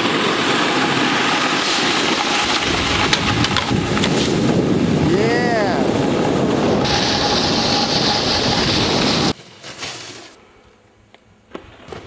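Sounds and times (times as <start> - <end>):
wind rush on microphone: 0.0 - 9.4
snowboard sliding on snow: 0.0 - 10.4.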